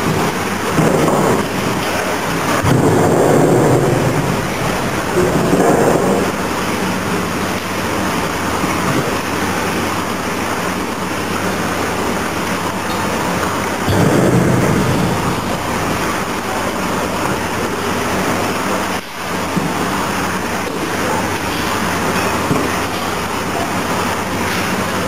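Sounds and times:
machine rushing noise: 2.4s - 6.9s, 13.9s - 19.0s.

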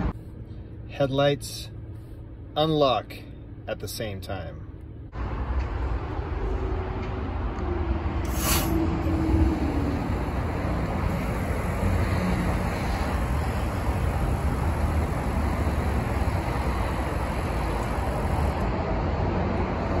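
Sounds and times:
outdoor rumble: 4.6s - 20.0s
air suspension hiss: 8.2s - 18.8s.

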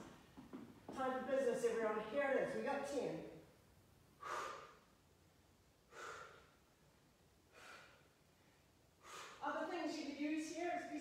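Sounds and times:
person exhaling forcefully: 4.2s - 4.8s.

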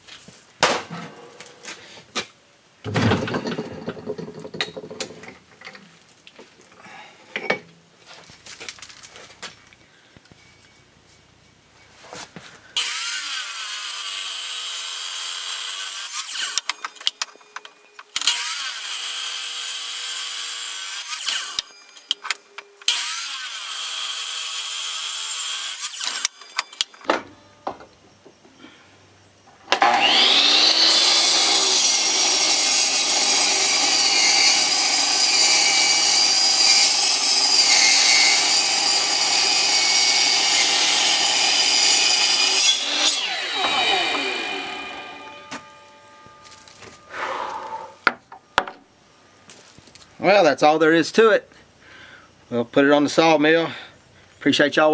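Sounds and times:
miter saw cutting metal: 12.8s - 27.0s, 29.8s - 46.7s.

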